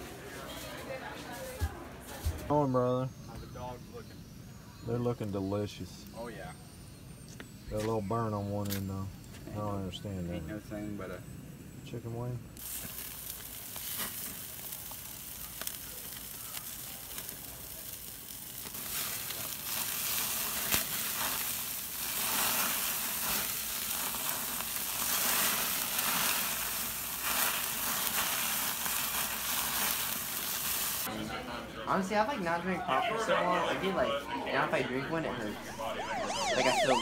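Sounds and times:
patties sizzling on a grill: 7.6s - 31.4s.

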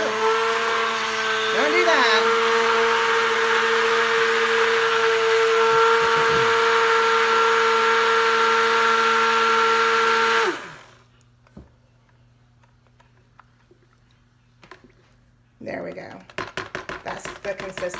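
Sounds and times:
stick blender motor whine: 0.0s - 11.0s.

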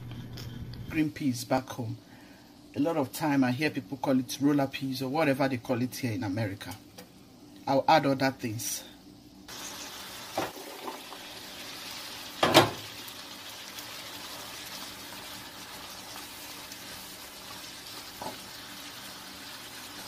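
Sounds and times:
vegetables sizzling in a frying pan: 9.5s - 20.0s.

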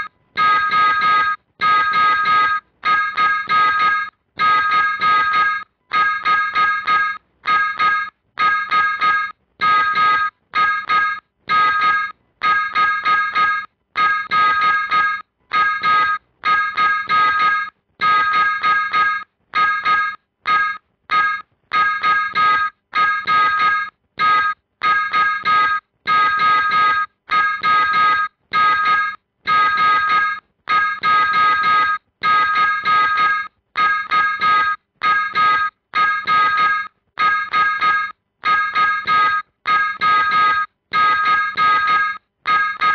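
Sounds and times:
morse code beeps: 0.0s - 42.9s.

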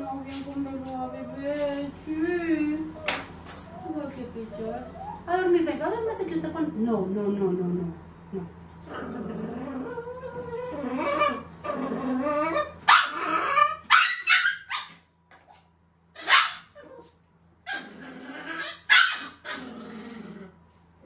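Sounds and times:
puppy growling and whining: 2.9s - 5.3s, 8.8s - 15.0s, 16.2s - 20.8s
dog barking sharply: 16.2s - 16.7s.

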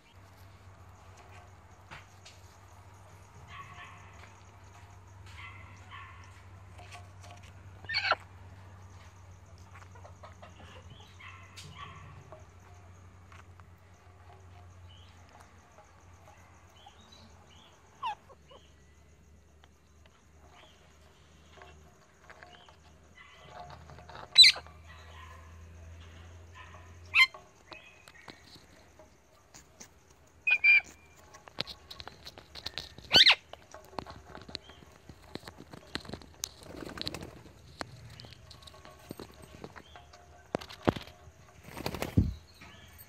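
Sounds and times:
parrots squawking: 7.8s - 8.2s, 24.2s - 24.6s, 30.4s - 31.0s, 33.0s - 33.4s
beaks clicking on seeds: 27.7s - 39.6s.

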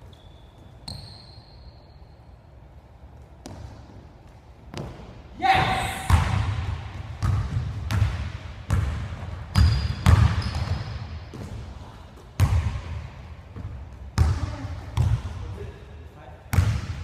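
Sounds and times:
basketball bouncing on gym floor: 3.4s - 15.6s, 16.5s - 17.0s.

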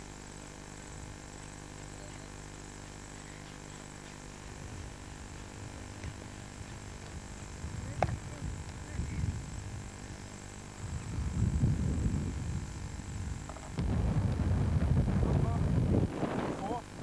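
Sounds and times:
faint high-pitched whine: 0.0s - 17.0s
wind buffeting microphone: 5.6s - 9.9s, 10.8s - 16.8s.

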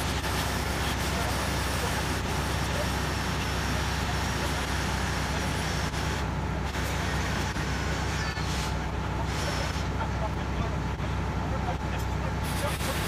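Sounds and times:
diesel engine rumbling: 0.0s - 13.0s.

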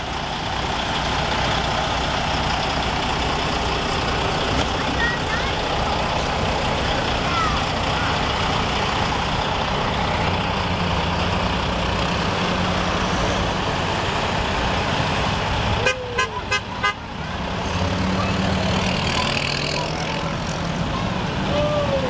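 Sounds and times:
vehicles driving past: 0.0s - 22.0s
vehicle horn tooting: 15.8s - 17.0s.

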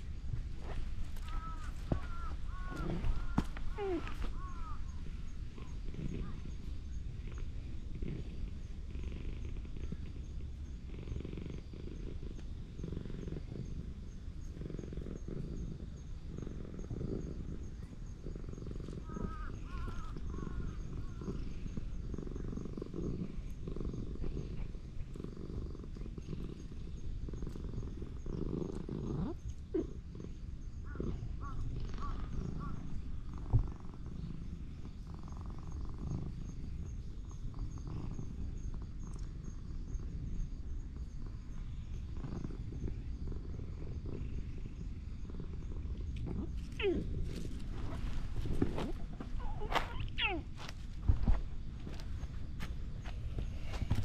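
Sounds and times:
cat purring: 0.0s - 51.2s
cat calling: 1.3s - 4.8s, 49.4s - 50.5s.

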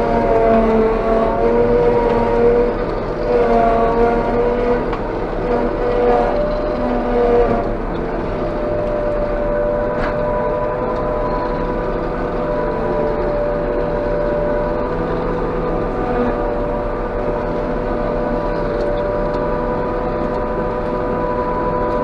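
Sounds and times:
engine drone: 0.0s - 22.0s
steady machine whine: 0.0s - 22.0s.

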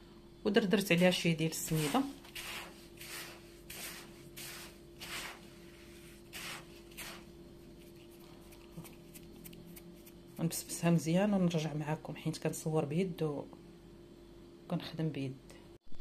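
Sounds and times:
faint hum: 0.0s - 16.0s
hands rubbing semolina in bowl: 0.9s - 10.2s.

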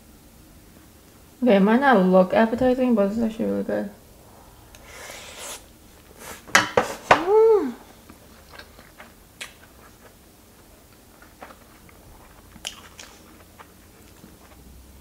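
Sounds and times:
person humming mm: 7.0s - 8.0s
soft chewing: 7.8s - 15.0s
wet lip-smacking: 10.9s - 14.6s.

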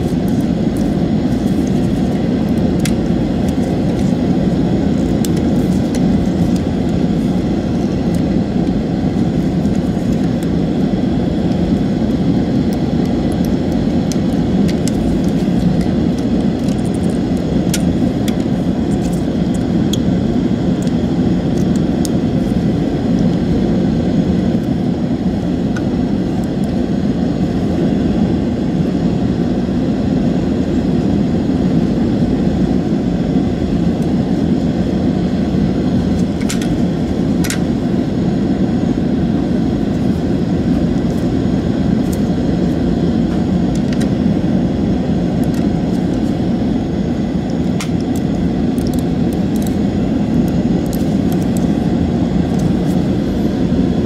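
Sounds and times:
plastic mouse parts clicking: 47.8s - 49.8s.

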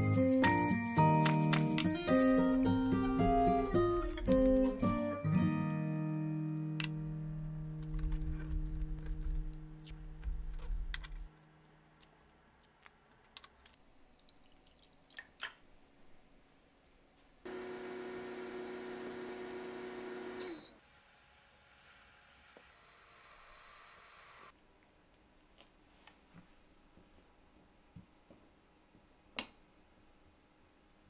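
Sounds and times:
background music: 0.0s - 9.9s
small appliance humming: 17.5s - 24.5s.

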